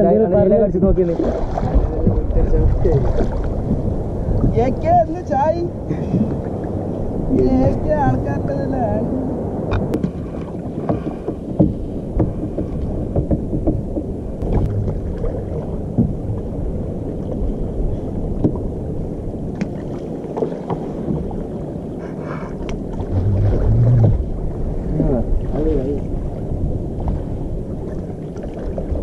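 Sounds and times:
water sloshing against hull: 0.0 - 29.0
short wooden knocks: 10.8 - 15.0.

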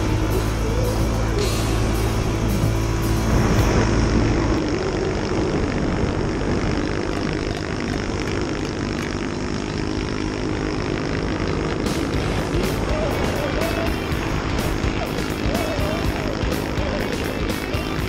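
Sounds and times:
heavy wind noise: 0.0 - 9.0
motorcycle engine running: 0.0 - 18.0.

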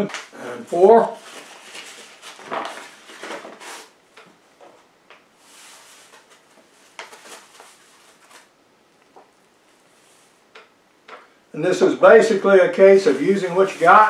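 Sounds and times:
paper bag rustling: 0.1 - 4.0, 5.4 - 8.5, 12.8 - 14.0
cornmeal pouring with soft hiss: 12.8 - 14.0.

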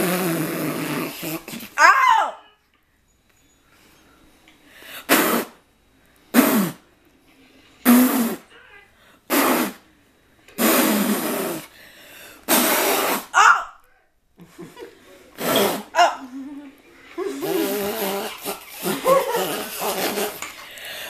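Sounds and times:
person laughing: 14.4 - 20.4.

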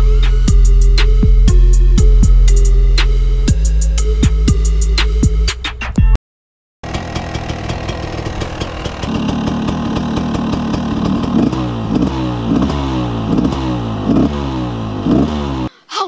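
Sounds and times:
two-stroke engine revving: 6.8 - 15.7.

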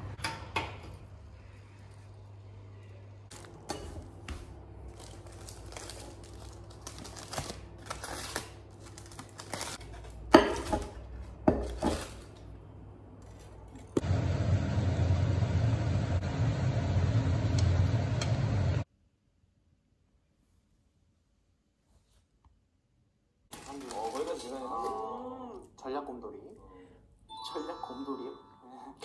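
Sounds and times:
aluminium foil crinkling: 4.8 - 12.5, 23.5 - 25.2.

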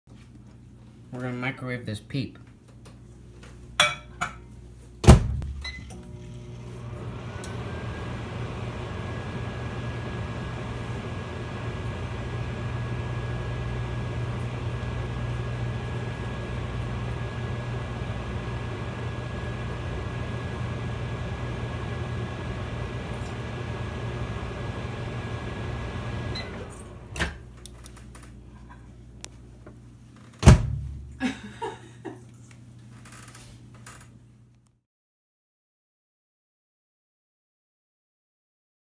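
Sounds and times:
microwave oven humming: 2.6 - 34.6
microwave door thump: 5.0 - 5.6, 30.4 - 31.1.

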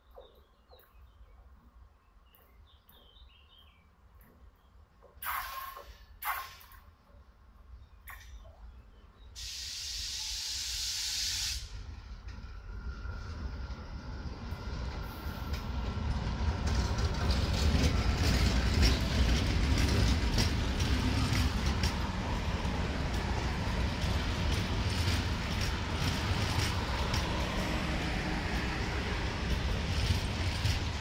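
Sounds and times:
train wheels rumbling on rails: 11.5 - 31.0.

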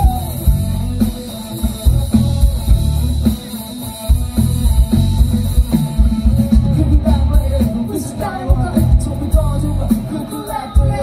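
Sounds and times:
drum kit and bass beat: 0.0 - 11.0
person singing: 6.4 - 11.0.

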